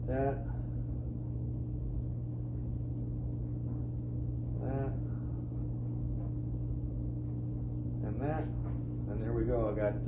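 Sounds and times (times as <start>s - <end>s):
man murmuring: 0.0s - 0.7s, 4.5s - 5.2s
laundry machine humming: 0.0s - 10.0s.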